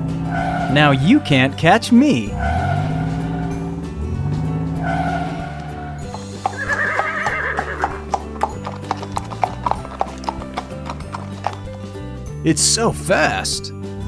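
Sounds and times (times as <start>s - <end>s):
background music: 0.0s - 14.0s
horse hooves trotting: 4.3s - 12.2s
horse whinnying: 4.9s - 11.7s.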